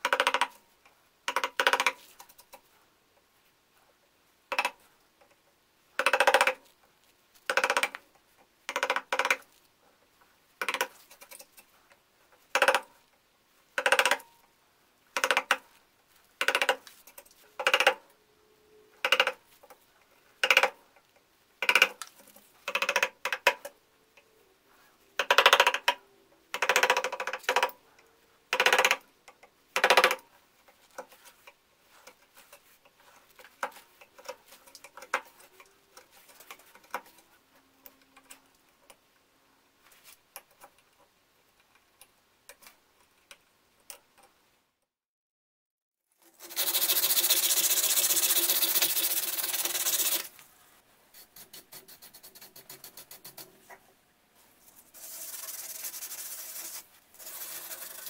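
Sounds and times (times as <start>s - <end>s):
light scratches and ticks: 30.6s - 39.0s, 51.2s - 53.8s.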